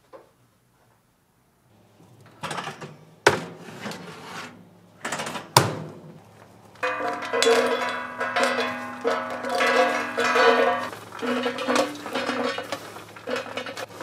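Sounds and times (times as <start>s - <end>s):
metal molds clanking: 6.8s - 14.0s.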